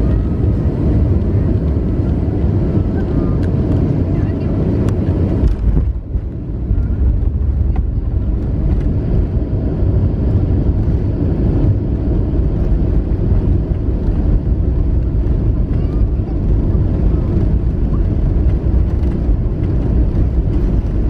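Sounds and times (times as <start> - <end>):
jet engines in reverse thrust: 0.0 - 21.0
wheels rumbling on runway: 0.0 - 21.0.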